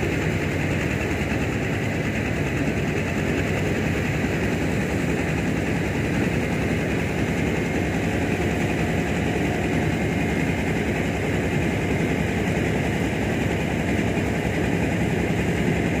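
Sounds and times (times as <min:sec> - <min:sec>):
engine running with low pulsing: 0:00.0 - 0:16.0.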